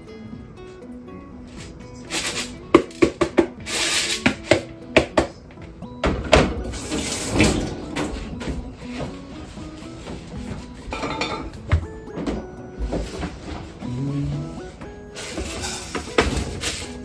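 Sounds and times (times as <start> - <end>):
pot knocking and clinking: 10.9 - 11.5.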